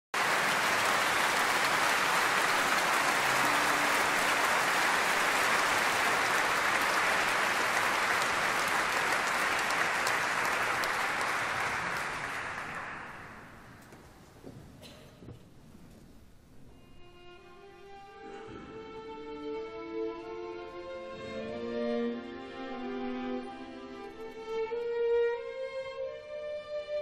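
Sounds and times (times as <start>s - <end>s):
audience applauding: 0.1s - 14.0s.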